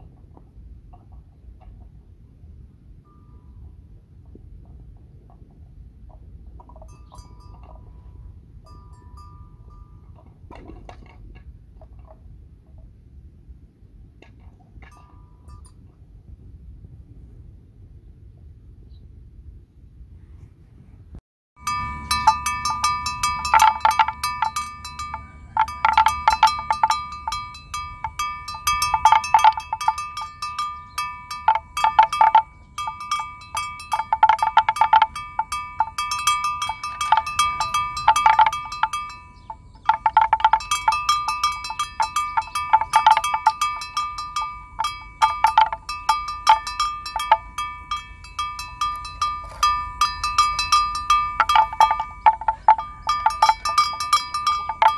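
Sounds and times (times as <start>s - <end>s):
bells jingling and clanking: 6.6s - 11.1s, 21.6s - 54.9s
steady two-pitch ringing: 21.6s - 54.9s.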